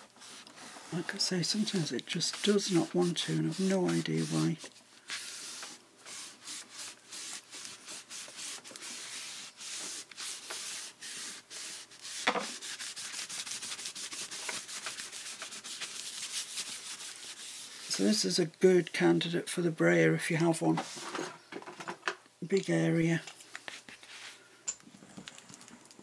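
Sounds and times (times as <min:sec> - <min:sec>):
tissue scrubbing over paper: 0:00.0 - 0:18.3.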